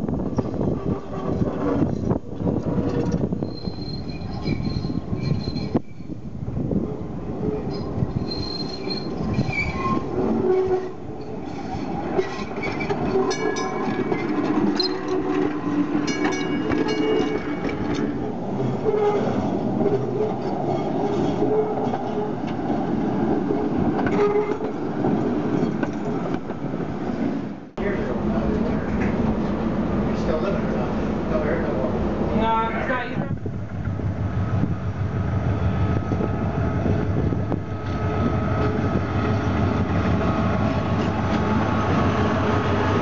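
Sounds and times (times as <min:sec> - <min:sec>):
wheels squealing on curve: 0:02.7 - 0:06.1, 0:07.4 - 0:15.5
wheels clicking over rail joints: 0:07.6 - 0:22.8
streetcar motors humming: 0:27.5 - 0:43.0.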